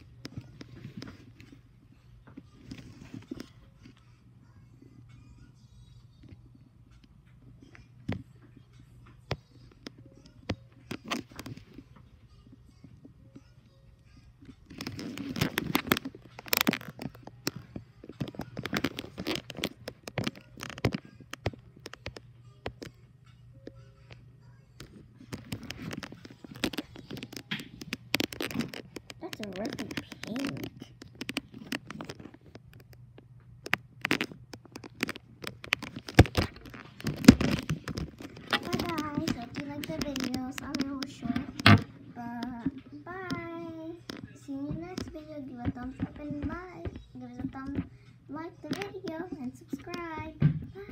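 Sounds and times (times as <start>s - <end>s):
slime squelching and clicking: 25.3s - 43.5s.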